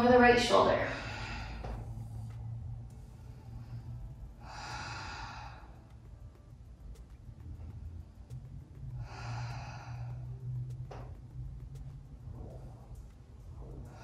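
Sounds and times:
low steady hum: 0.0s - 14.0s
woman breathing: 0.8s - 6.5s, 7.6s - 11.1s, 12.3s - 14.0s.

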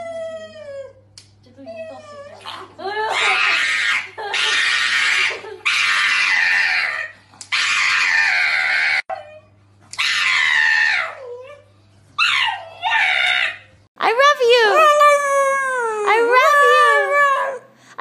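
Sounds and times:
dog screaming high-pitched cries: 3.1s - 9.1s, 10.0s - 11.4s, 12.2s - 13.7s, 14.6s - 17.6s.

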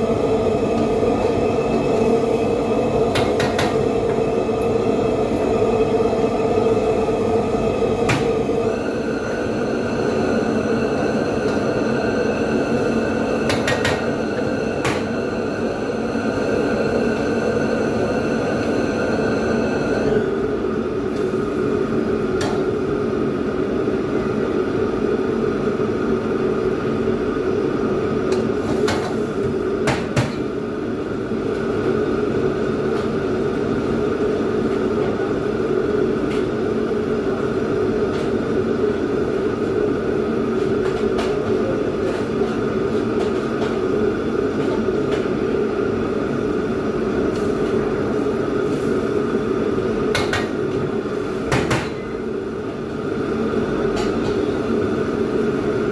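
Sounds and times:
extractor hood fan: 0.0s - 51.6s
gas wok burner: 46.3s - 51.8s.

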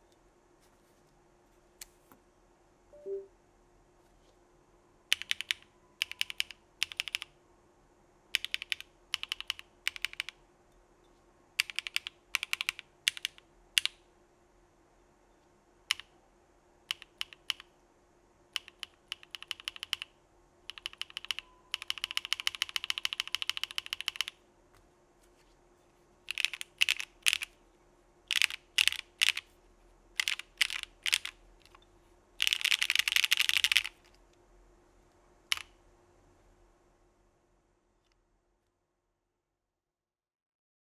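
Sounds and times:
mechanical keyboard typing: 5.1s - 7.3s, 8.3s - 10.4s, 11.6s - 14.0s, 15.9s - 16.1s, 16.9s - 17.7s, 18.6s - 24.4s, 26.3s - 27.6s, 28.3s - 29.5s, 30.2s - 31.8s, 32.4s - 34.1s, 35.5s - 35.7s.

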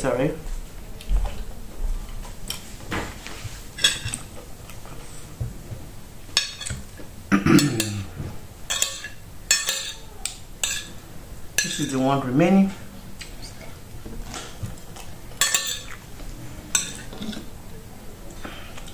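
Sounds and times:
person vocal sound: 7.3s - 8.4s.

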